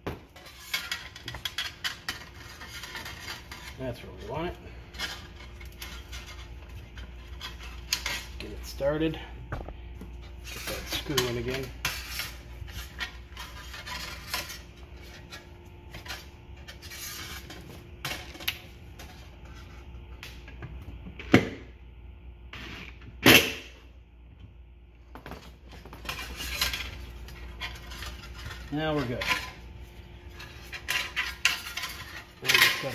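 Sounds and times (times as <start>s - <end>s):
metal parts clicking and rattling: 30.4s - 32.9s.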